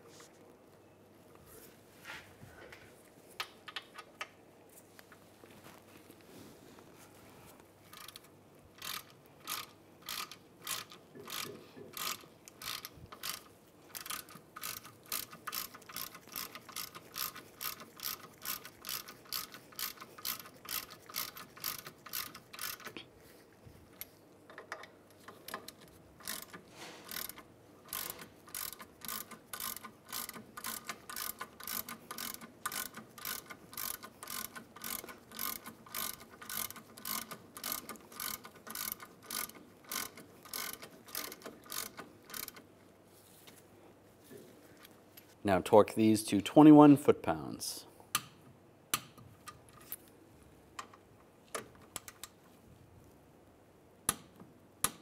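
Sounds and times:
ratchet clicking: 7.9 - 23.0, 24.5 - 42.7.

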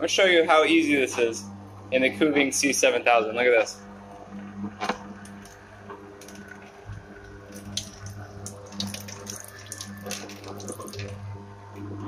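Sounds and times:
juicer motor hum: 0.0 - 12.0
oranges cracking in juicer: 4.9 - 11.9.

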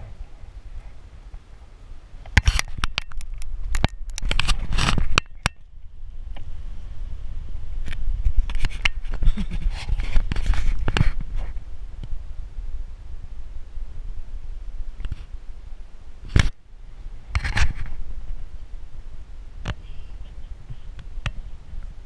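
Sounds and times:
low rumble: 3.2 - 22.0
rope and gear scraping on tree: 4.2 - 5.2, 8.2 - 11.6.

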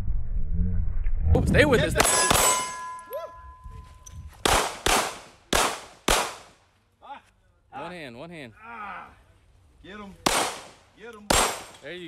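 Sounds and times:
pistol shots: 2.0 - 2.8, 4.4 - 6.6, 10.2 - 12.0
steady ringing tone: 2.1 - 4.3.

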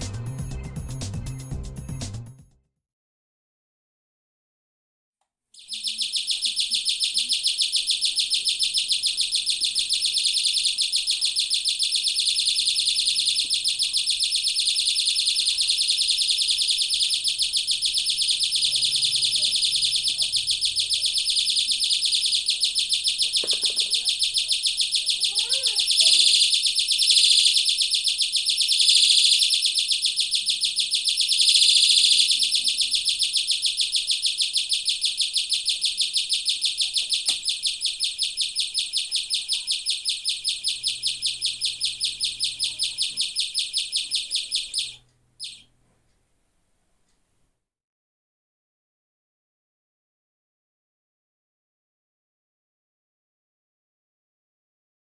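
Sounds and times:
electronic chirps from loudspeaker: 5.6 - 45.7.

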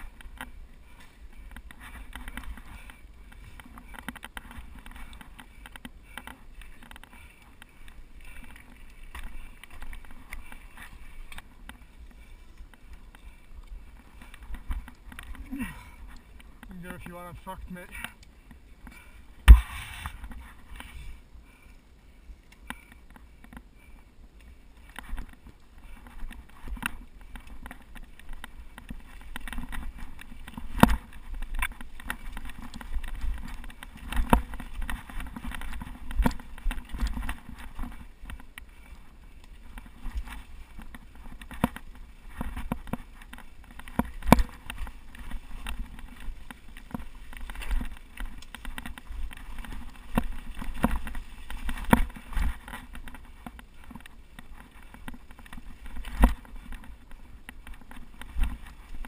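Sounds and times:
bike knocks and rattles: 18.9 - 20.9, 26.1 - 39.0, 39.6 - 59.0.

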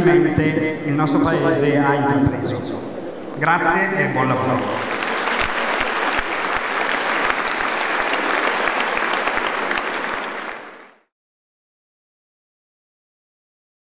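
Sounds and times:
audience applauding: 4.2 - 11.1.

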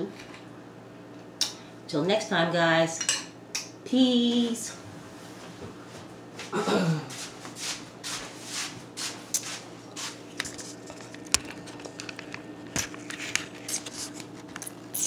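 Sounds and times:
camera handling rustles and scrapes: 10.3 - 14.7.

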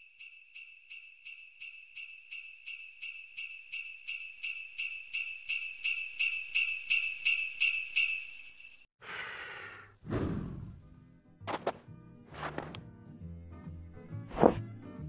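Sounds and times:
sleigh bells jingling: 0.0 - 8.9
low whoosh: 10.0 - 10.9
downward swish: 14.3 - 14.6.

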